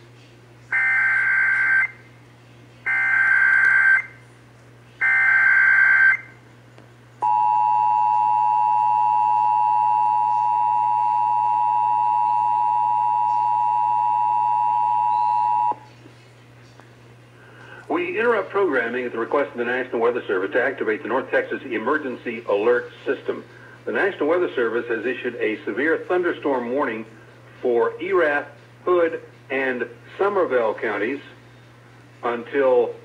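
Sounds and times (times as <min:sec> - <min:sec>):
two-tone alert signal: 0:00.7 - 0:02.0, 0:02.9 - 0:04.1, 0:07.2 - 0:15.8.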